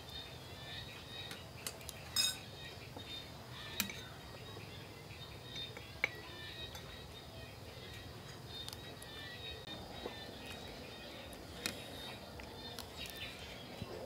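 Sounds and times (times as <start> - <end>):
spoons clinking on ceramic bowls: 2.1 - 2.5.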